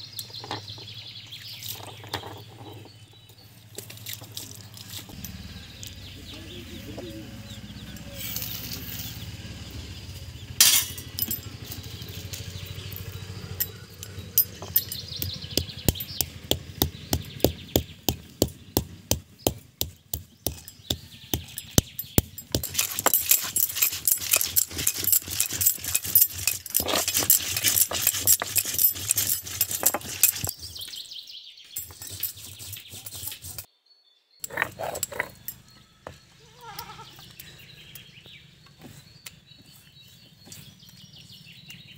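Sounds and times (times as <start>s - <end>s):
stone roller knocking on grinding stone: 14.2s - 30.6s
crunching and scraping: 20.4s - 31.0s, 31.7s - 33.7s.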